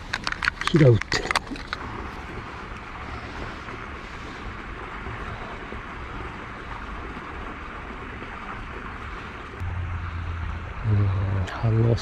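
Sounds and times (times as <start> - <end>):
running water rushing: 0.0 - 12.0.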